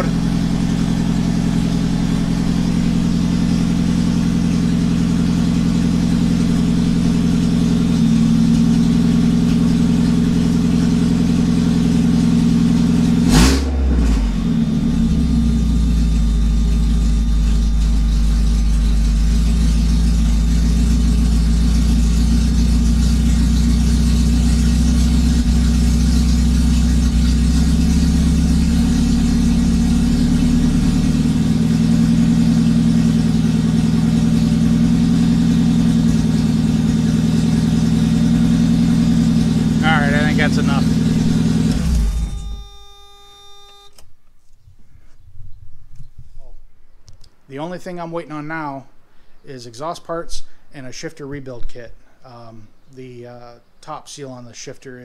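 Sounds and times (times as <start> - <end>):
car engine idling loudly: 0.0 - 43.8.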